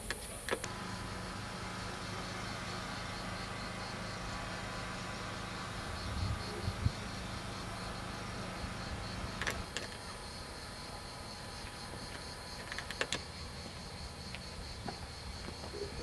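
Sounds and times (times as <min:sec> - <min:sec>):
insects chirping: 0:00.0 - 0:16.0
low rumble on microphone: 0:05.8 - 0:07.1.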